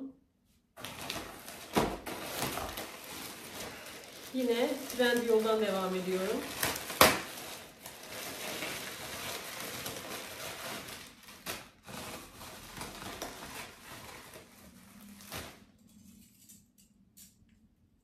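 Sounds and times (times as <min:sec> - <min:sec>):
plastic bag crinkling and rustling: 0:00.8 - 0:15.9
packaging snap: 0:06.4 - 0:07.5.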